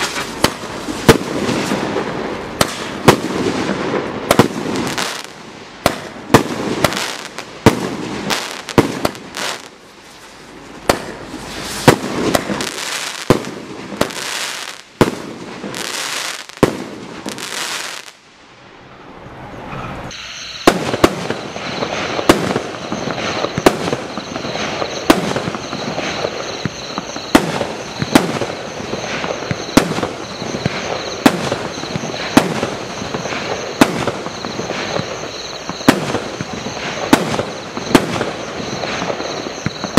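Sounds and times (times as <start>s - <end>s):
sharp firework shots: 0.0s - 9.8s, 10.8s - 18.2s, 20.1s - 39.9s
crackling firework bursts: 0.0s - 18.4s, 20.1s - 39.9s
high-pitched whistle: 19.6s - 39.9s.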